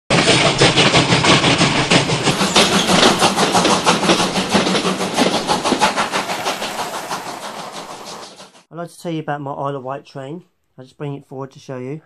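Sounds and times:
model train wheels clicking: 0.1s - 8.7s
motor hum: 1.9s - 8.5s.

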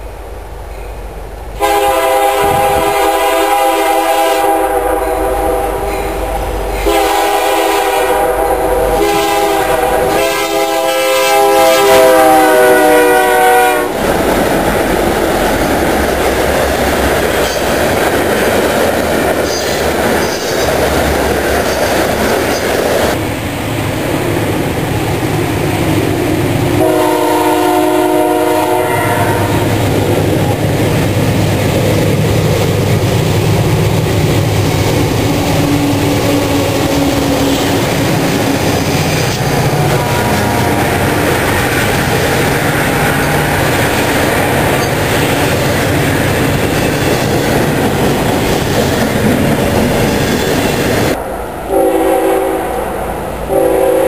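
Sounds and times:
rail cars rumbling and clattering: 0.0s - 54.0s
locomotive air horn: 1.6s - 14.0s, 26.8s - 29.8s, 39.3s - 41.0s, 51.7s - 52.8s, 53.5s - 54.0s
second train horn: 1.6s - 14.0s, 26.8s - 29.8s, 39.3s - 41.0s, 51.7s - 54.0s.

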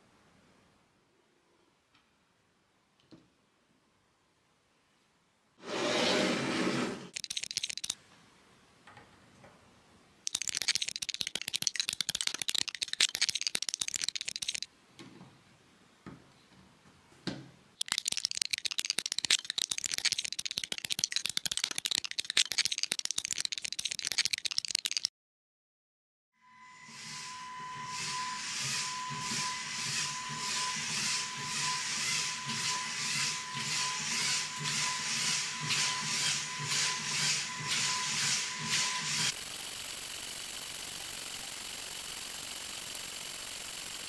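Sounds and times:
plastic bricks rattling and clicking: 7.1s - 8.0s, 10.3s - 14.7s, 17.8s - 25.1s.

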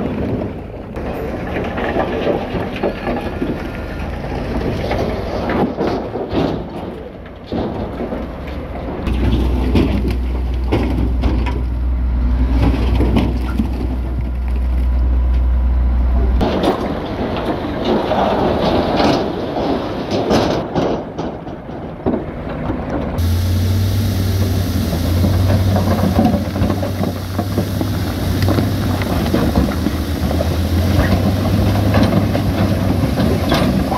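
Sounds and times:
rocks and earth tumbling out: 0.0s - 11.8s, 12.4s - 15.0s, 23.8s - 33.9s
truck engine droning: 0.0s - 33.9s.

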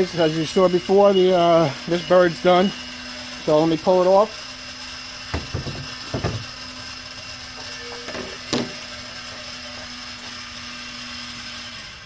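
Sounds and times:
rotisserie motor humming: 0.0s - 12.0s
sharp knocks: 5.3s - 6.4s.

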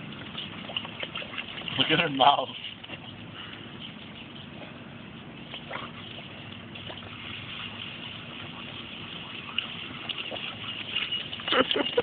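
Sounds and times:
hose water splashing on wall: 6.6s - 12.0s.

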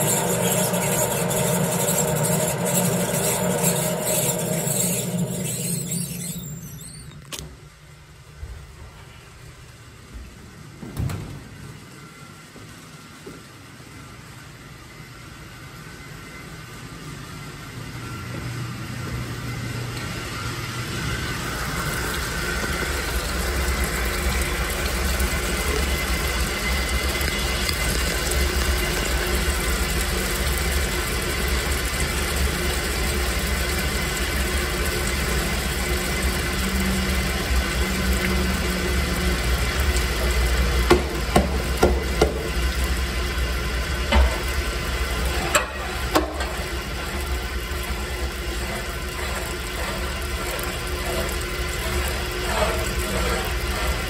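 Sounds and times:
grain mill crushing malt: 0.0s - 7.4s, 21.9s - 54.0s.

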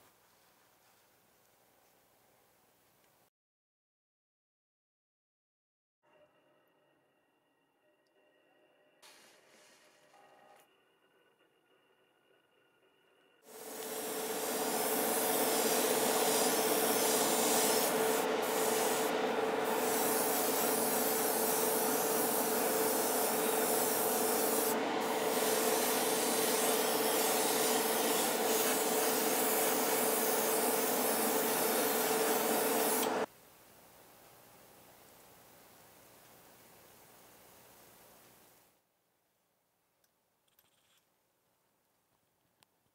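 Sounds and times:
airbrush spraying air hiss: 13.5s - 33.3s.

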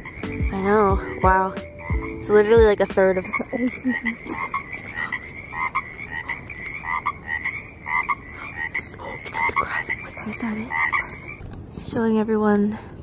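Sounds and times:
steady high trill: 0.0s - 3.7s
frogs croaking: 0.0s - 11.6s.

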